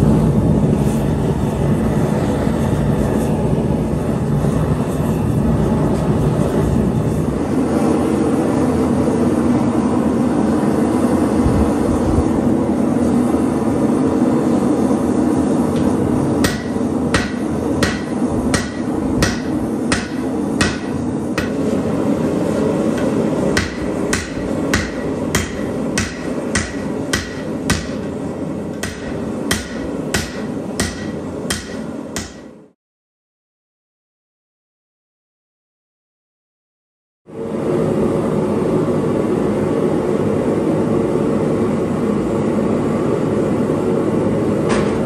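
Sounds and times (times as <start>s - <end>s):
forge burners rushing: 0.0s - 32.7s
hammer ringing on anvil: 16.4s - 21.7s, 23.0s - 28.1s, 28.8s - 32.6s.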